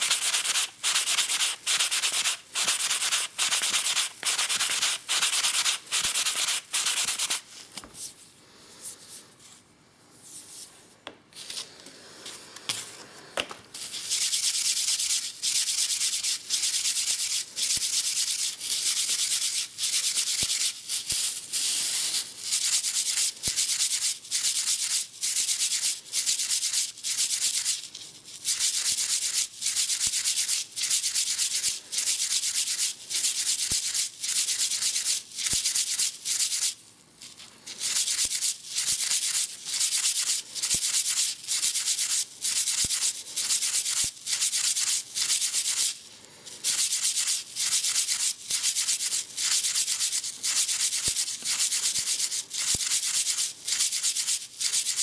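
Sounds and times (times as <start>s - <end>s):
wood rubbing on abrasive pad: 0.0s - 7.4s.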